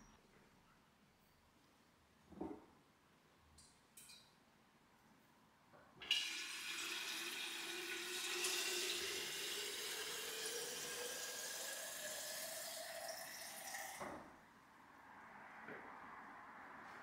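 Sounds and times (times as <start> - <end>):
tap water filling container: 6.0 - 14.2.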